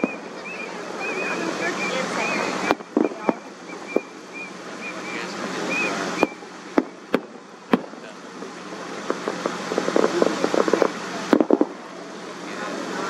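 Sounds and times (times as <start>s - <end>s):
crackling firework pops: 0.0s - 0.3s, 2.6s - 4.2s, 6.2s - 11.9s
distant firework reports: 0.0s - 13.0s.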